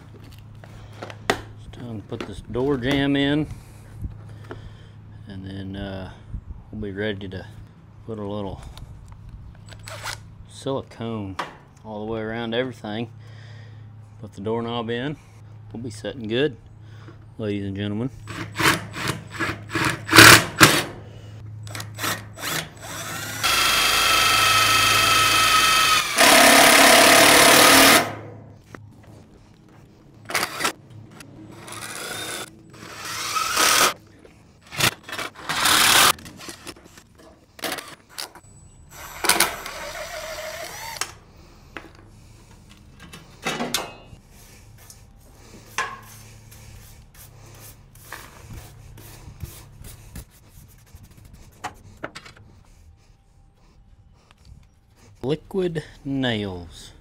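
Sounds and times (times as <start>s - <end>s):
cordless drill whining: 21.7s - 28.1s, 31.7s - 34.0s, 35.5s - 36.1s, 38.9s - 41.2s.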